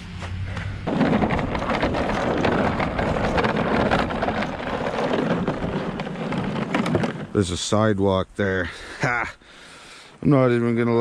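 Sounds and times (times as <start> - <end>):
snowblower engine humming: 0.0 - 7.4
snowblower rushing and crackling: 0.0 - 7.6.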